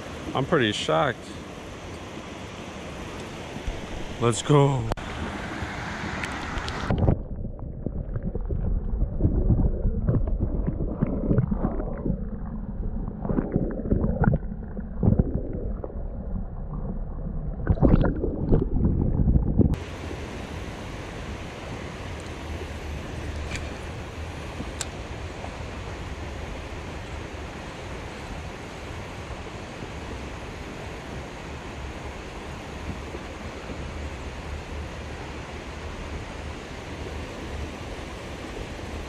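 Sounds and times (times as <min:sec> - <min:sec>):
muffled underwater sloshing: 0:05.1 - 0:19.8.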